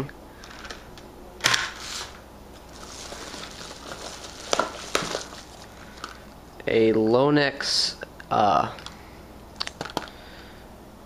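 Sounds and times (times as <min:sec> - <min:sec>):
paper mailer crinkling and rustling: 0:01.4 - 0:06.4.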